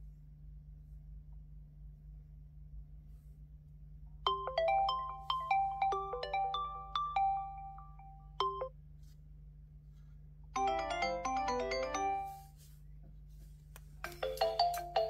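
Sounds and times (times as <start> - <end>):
ringtone cascade of notes: 4.3 - 8.7, 10.6 - 12.5, 14.0 - 15.0
ringtone melody of struck notes: 4.3 - 8.7, 10.6 - 12.5, 14.0 - 15.0.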